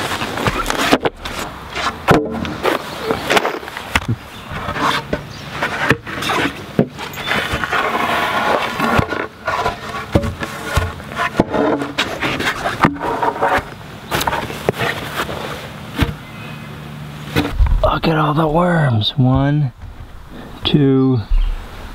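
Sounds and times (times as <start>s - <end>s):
footsteps on wooden boards: 0.0s - 16.2s
boards scraping: 0.0s - 16.3s, 17.2s - 18.5s.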